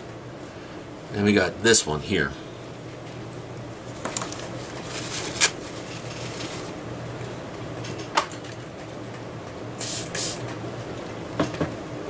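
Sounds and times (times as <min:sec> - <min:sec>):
faint steady hum: 0:00.0 - 0:12.0
short hiss: 0:09.8 - 0:10.4.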